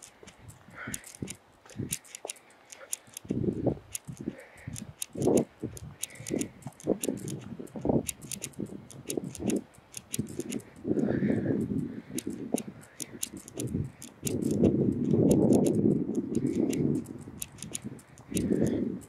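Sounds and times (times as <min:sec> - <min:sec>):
footsteps on concrete: 0:00.0 - 0:02.5
small sharp clicks: 0:00.0 - 0:19.0.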